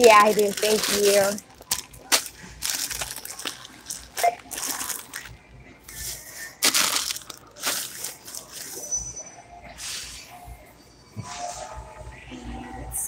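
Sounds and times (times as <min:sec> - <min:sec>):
plastic bags rustling: 0:00.0 - 0:08.9.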